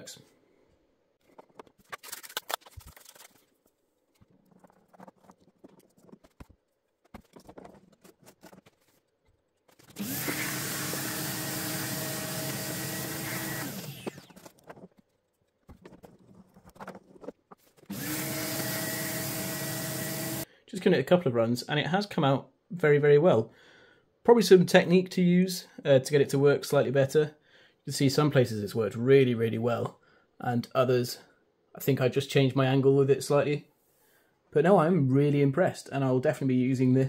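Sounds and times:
vacuum cleaner whining: 10.0 - 14.3, 17.9 - 20.4.

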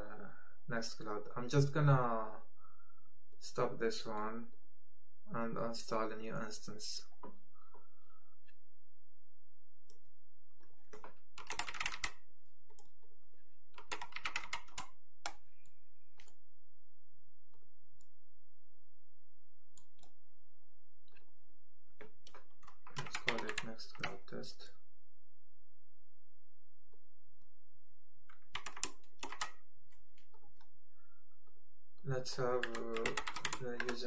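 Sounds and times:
computer keyboard typing: 10.6 - 13.0, 13.7 - 15.4, 22.0 - 24.2, 28.3 - 29.6, 32.4 - 34.0.

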